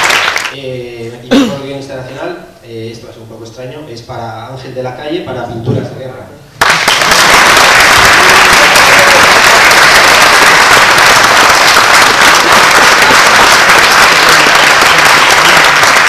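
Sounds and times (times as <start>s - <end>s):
audience applauding: 0.0s - 0.5s, 6.6s - 16.0s.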